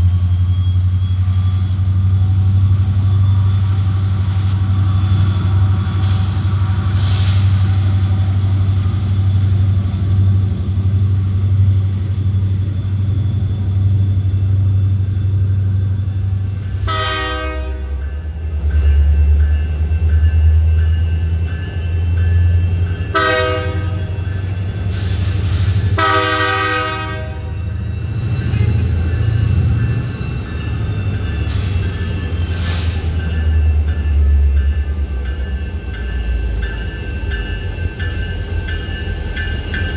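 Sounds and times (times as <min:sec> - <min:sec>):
diesel locomotive engine rumbling: 0:00.0 - 0:39.9
train air horn blasts: 0:16.8 - 0:18.0, 0:23.1 - 0:24.0, 0:26.0 - 0:27.6.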